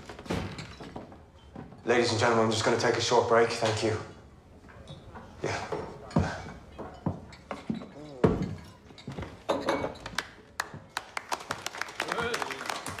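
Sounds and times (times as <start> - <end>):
glass and wood clinks: 0.2 - 1.9, 6.0 - 10.2
people clapping: 10.0 - 13.0.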